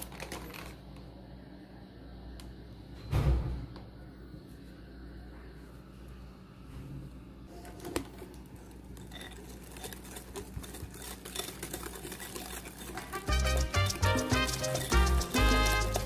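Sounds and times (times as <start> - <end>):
whisk clicking against glass bowl: 9.0 - 16.0
upbeat latin music: 12.8 - 16.0.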